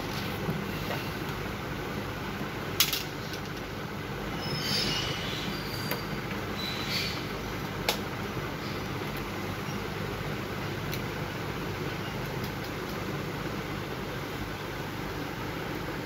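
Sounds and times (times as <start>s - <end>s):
steady background hum: 0.0s - 16.0s
sharp clicks of parts: 2.8s - 3.7s.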